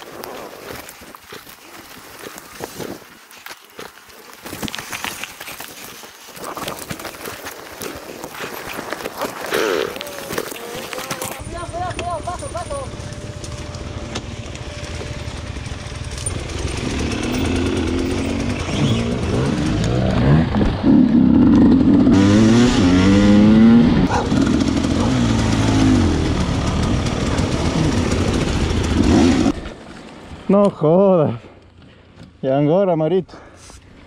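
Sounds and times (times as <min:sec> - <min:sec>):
dirt bike engine revving: 0:14.6 - 0:29.8.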